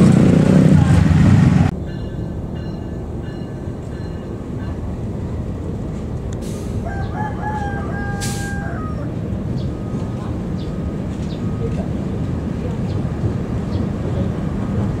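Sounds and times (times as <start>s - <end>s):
locomotive rumbling: 0.0s - 15.0s
rooster crowing: 6.8s - 9.2s.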